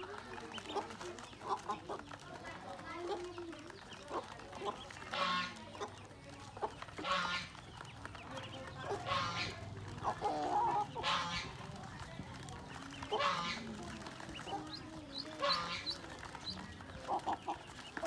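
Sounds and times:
duckling peeps: 0.2 - 2.3, 3.0 - 18.0
hen clucking: 0.2 - 18.0
harsh poultry calls: 2.9 - 12.0, 12.6 - 18.0.

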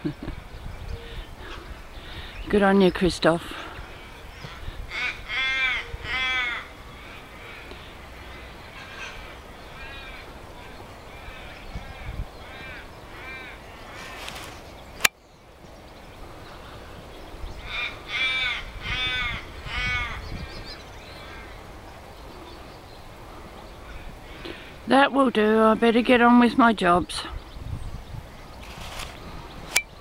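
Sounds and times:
crow cawing: 4.4 - 14.4, 17.6 - 20.3, 21.2 - 21.6.

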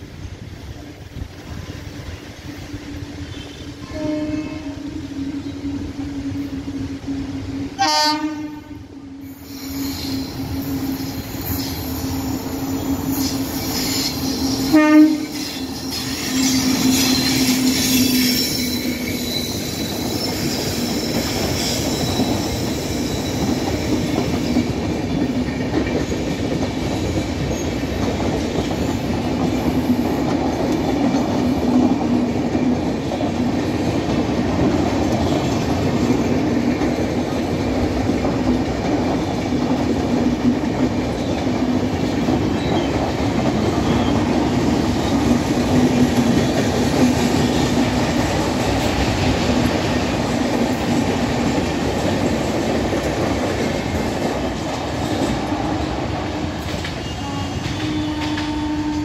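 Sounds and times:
low locomotive drone: 0.0 - 21.6
train passing: 0.0 - 59.0
wheels rattling on rails: 9.2 - 59.0.

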